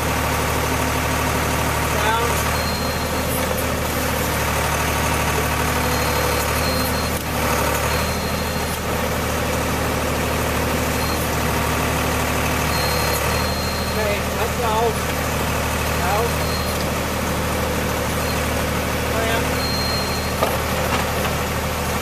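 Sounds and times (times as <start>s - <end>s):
machine engine running: 0.0s - 22.0s.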